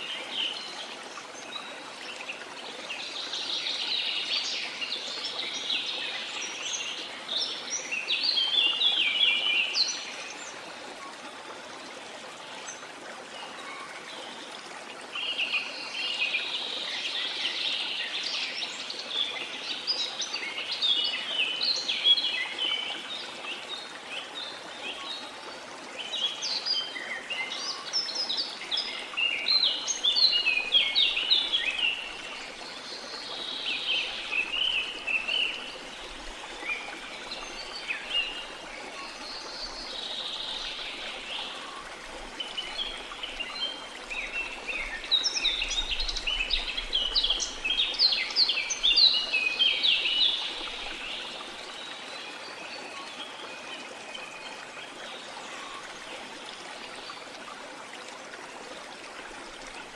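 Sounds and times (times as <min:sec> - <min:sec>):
running water: 0:00.0 - 0:59.9.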